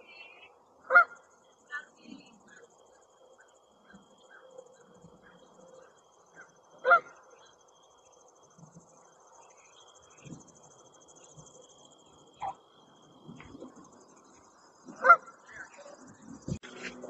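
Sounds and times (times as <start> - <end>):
high-pitched insect chorus: 0.0 - 17.0
goose honking: 0.9 - 1.9, 6.8 - 7.2, 14.9 - 15.9.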